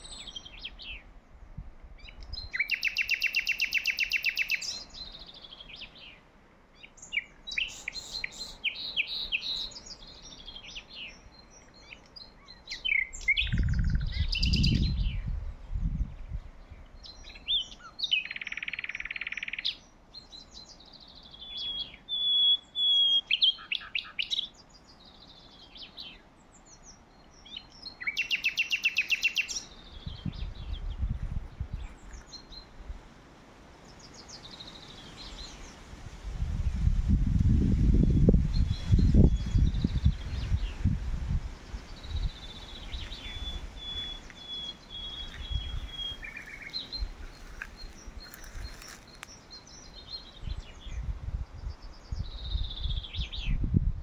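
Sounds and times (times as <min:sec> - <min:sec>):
songbirds singing: 0:00.0 - 0:54.0
low rumble on microphone: 0:13.5 - 0:16.9, 0:30.0 - 0:32.2, 0:50.4 - 0:54.0.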